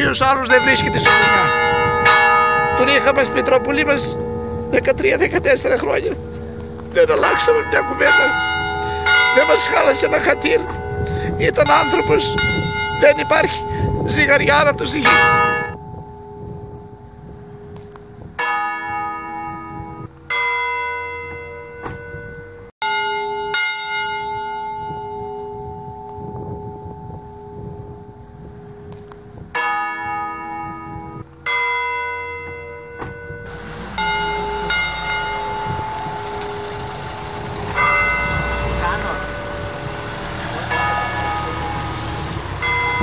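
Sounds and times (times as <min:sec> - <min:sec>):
church bells tolling: 0:00.0 - 0:43.0
low rumble: 0:33.5 - 0:43.0.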